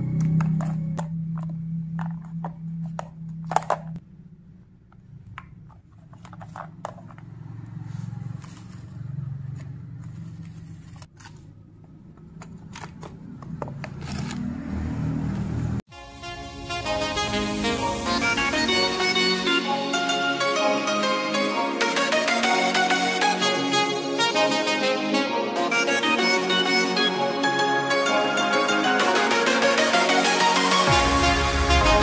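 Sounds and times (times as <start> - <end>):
plastic clicks and scrapes: 5.3 - 7.3, 12.2 - 14.5.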